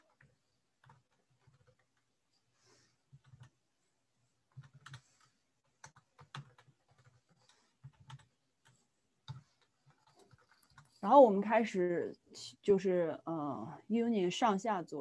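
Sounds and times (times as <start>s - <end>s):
keyboard typing: 0.0s - 2.2s, 3.1s - 3.6s, 4.4s - 11.1s.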